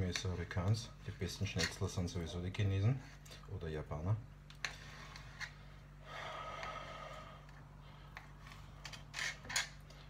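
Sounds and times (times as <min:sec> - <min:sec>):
low steady hum: 0:00.0 - 0:10.0
person breathing out: 0:06.0 - 0:08.2.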